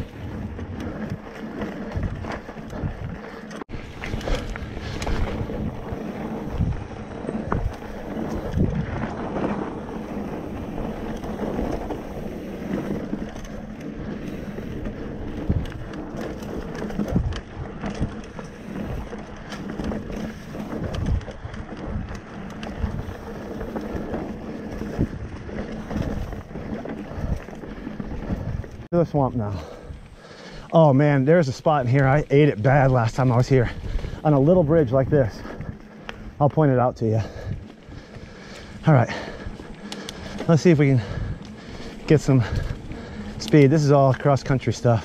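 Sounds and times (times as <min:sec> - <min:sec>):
bike knocking and rattling: 0:00.0 - 0:45.0
bike tyres on dirt: 0:00.0 - 0:45.0
wind buffeting microphone: 0:00.0 - 0:45.0.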